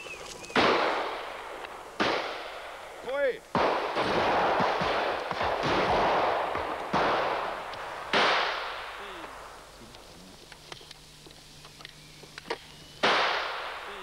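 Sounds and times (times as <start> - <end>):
shotgun shots with echo: 0.5 - 9.6, 13.0 - 14.0.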